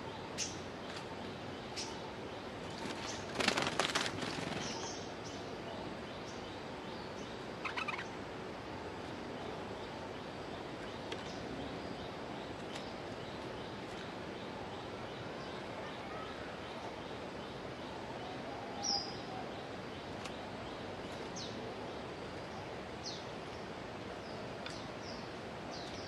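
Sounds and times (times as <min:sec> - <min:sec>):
birds chattering harshly: 0:02.6 - 0:08.2.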